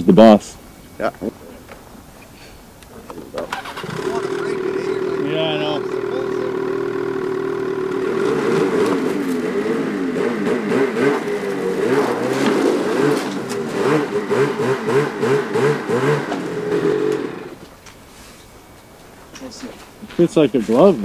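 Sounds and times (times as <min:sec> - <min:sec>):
engine throttle blips: 0:03.3 - 0:17.6
snowmobile engine running: 0:03.5 - 0:17.6.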